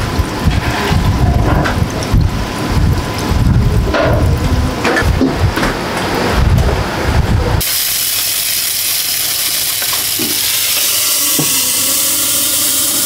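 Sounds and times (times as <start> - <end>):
food sizzling in a pan: 7.6 - 13.0.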